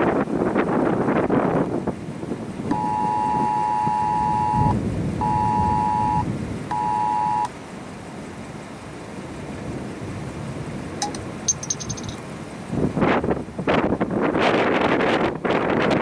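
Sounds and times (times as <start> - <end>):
wind noise on microphone: 0.0 - 7.5, 9.5 - 16.0
two-tone emergency alert signal: 2.7 - 7.5.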